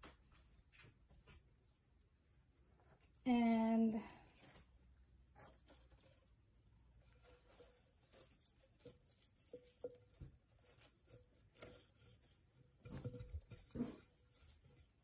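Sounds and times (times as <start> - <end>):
faint rustling of plant stems: 0.3 - 15.0.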